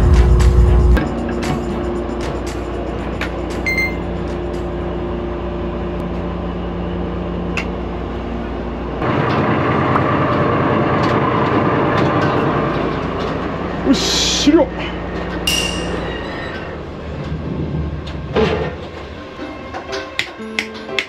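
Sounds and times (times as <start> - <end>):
diesel engine running: 0.0 - 15.5.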